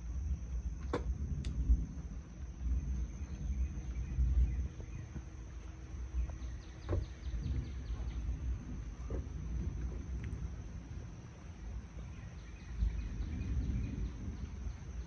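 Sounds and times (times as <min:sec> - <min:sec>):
light rain: 0:00.0 - 0:15.0
wind rumble on microphone: 0:00.0 - 0:15.0
bird chirping: 0:06.1 - 0:08.5, 0:11.9 - 0:15.0.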